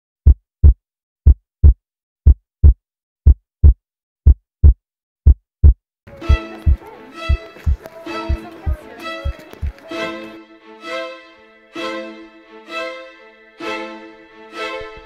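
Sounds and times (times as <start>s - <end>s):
heartbeat thumps: 0.2s - 9.8s
music with violin: 6.1s - 15.0s.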